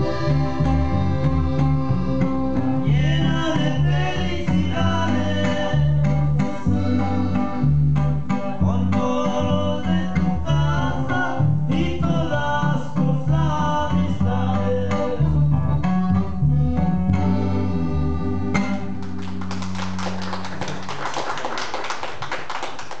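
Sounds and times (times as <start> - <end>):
band with accordion bass and guitar: 0.0 - 20.9
audience clapping: 19.0 - 23.0.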